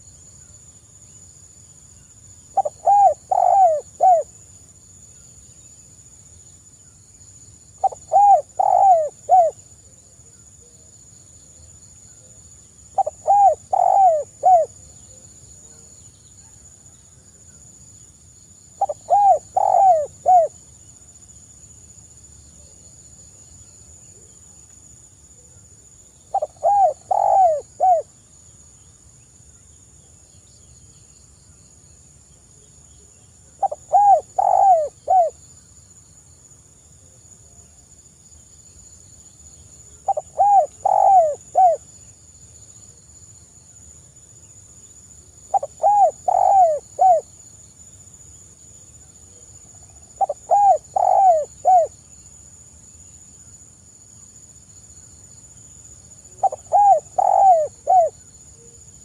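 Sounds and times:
dove cooing: 0:02.5 - 0:04.3, 0:07.8 - 0:09.6, 0:13.0 - 0:14.8, 0:18.8 - 0:20.5, 0:26.3 - 0:28.1, 0:33.6 - 0:35.4, 0:40.0 - 0:41.8, 0:45.5 - 0:47.3, 0:50.2 - 0:51.9, 0:56.4 - 0:58.2.

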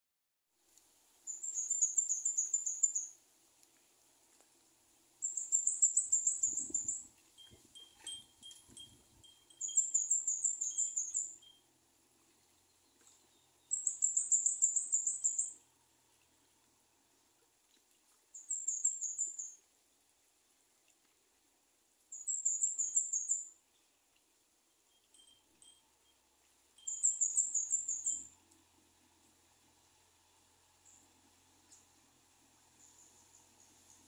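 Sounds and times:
small bird high chirps: 0:01.3 - 0:03.2, 0:05.2 - 0:11.6, 0:12.8 - 0:15.6, 0:18.3 - 0:19.6, 0:22.1 - 0:23.6, 0:26.8 - 0:28.4.

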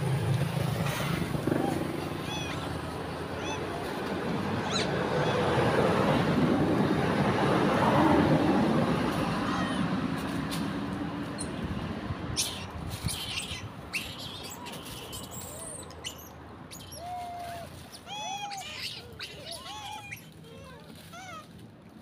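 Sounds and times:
passing vehicle rumble: 0:00.0 - 0:22.0
macaques squeaky coo calls: 0:01.1 - 0:05.8, 0:12.4 - 0:21.5.

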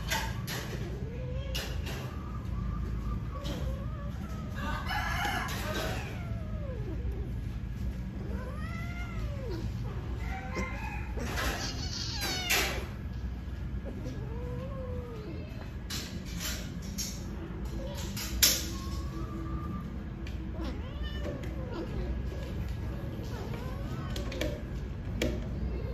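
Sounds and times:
cats yowling: 0:00.0 - 0:25.9.

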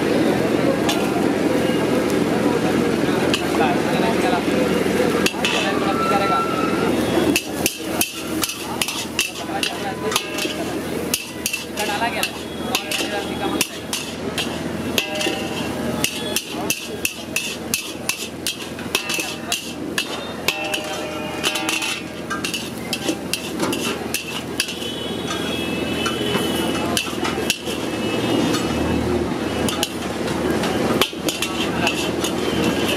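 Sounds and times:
metal spatula scraping a wok: 0:05.2 - 0:05.7, 0:07.2 - 0:28.8, 0:29.5 - 0:32.9.

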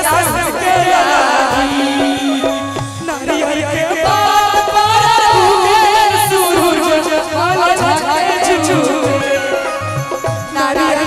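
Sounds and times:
steady drum beat: 0:00.0 - 0:11.0
women singing folk song: 0:00.0 - 0:11.0.

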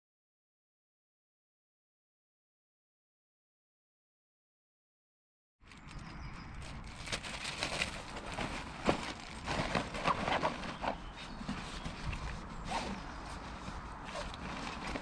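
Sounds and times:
fabric rustling: 0:06.7 - 0:15.0.

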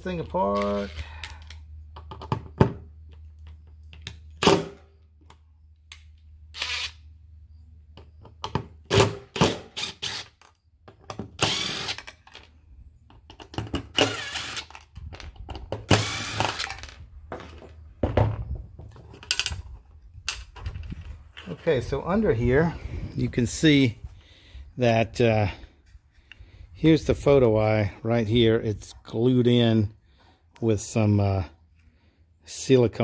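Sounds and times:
cordless driver whirring: 0:06.6 - 0:07.0, 0:09.7 - 0:10.4, 0:11.4 - 0:12.1, 0:13.9 - 0:14.9, 0:15.9 - 0:16.8.

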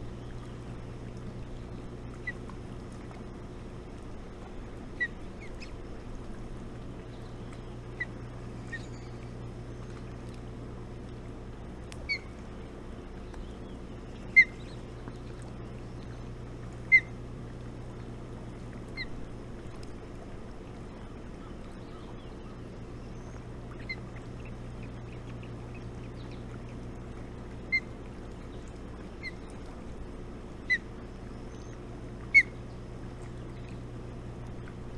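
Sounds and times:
steady low hum: 0:00.0 - 0:34.9
osprey chirps: 0:07.1 - 0:09.3, 0:12.0 - 0:12.4.

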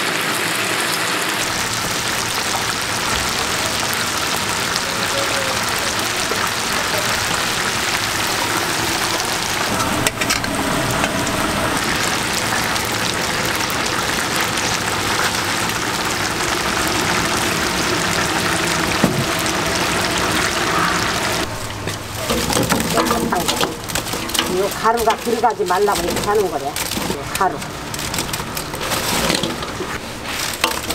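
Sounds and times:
oil sizzling loudly: 0:00.0 - 0:30.9
skimmer stirring in oil: 0:17.1 - 0:30.9.

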